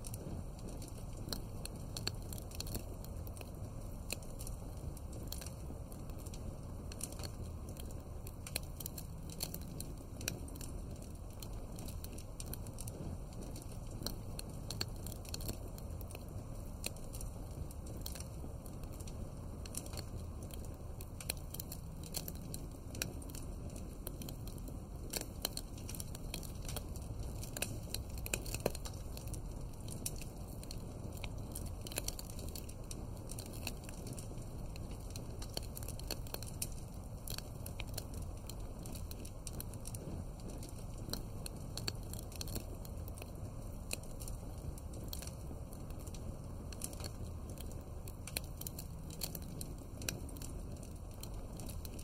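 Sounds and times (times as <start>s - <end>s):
low steady rumble: 0.0s - 52.0s
wood fire crackling: 0.0s - 52.0s.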